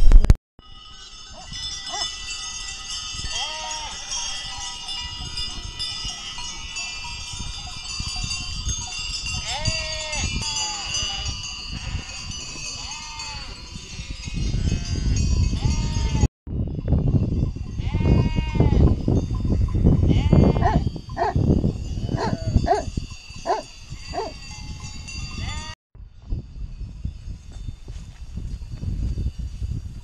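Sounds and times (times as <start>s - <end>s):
bells ringing: 0.6s - 25.8s
sheep bleating: 3.3s - 4.0s, 9.4s - 12.2s, 12.8s - 13.6s.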